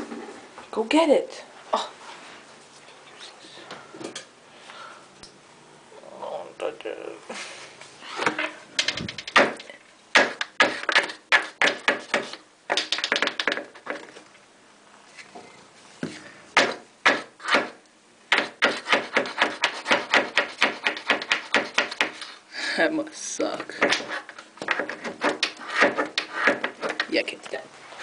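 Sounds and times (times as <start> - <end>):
hard taps on tiled floor: 8.8 - 14.1.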